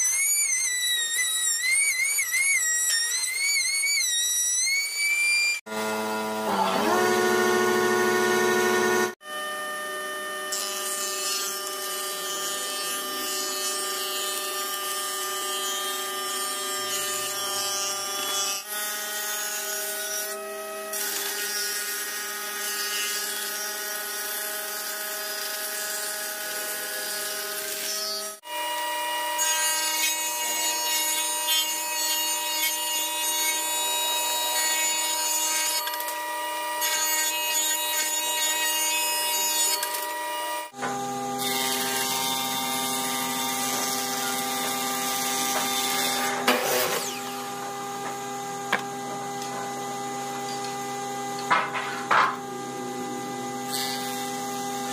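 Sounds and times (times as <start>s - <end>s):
electric wood planer running: 5.6s - 22.7s, 38.1s - 54.9s.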